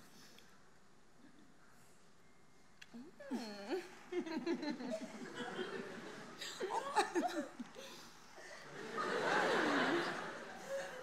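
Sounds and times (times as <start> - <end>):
audience laughter: 4.2 - 7.6, 8.6 - 11.0.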